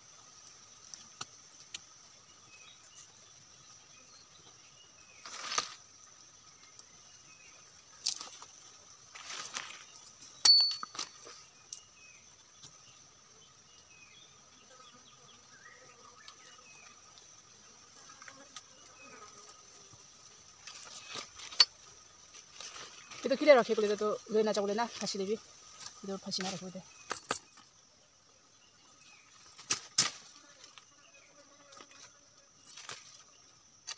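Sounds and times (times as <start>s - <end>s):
high insect drone: 0.0s - 33.9s
bamboo sticks clicking on soil: 0.4s - 2.0s
dry leaves rustling: 8.0s - 10.2s, 20.7s - 27.0s.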